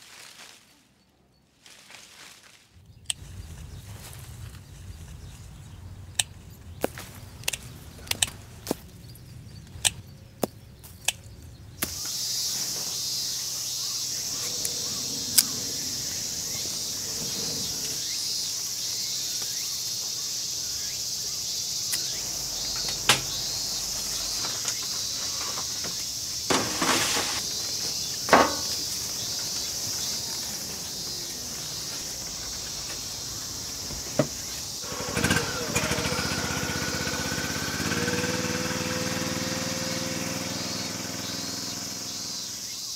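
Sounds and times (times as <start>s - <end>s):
footsteps through grass: 0.0s - 5.8s, 22.0s - 34.8s
high insect drone: 11.5s - 42.9s
small engine running: 11.8s - 18.4s, 21.6s - 42.9s
plastic crates knocking: 26.5s - 29.2s.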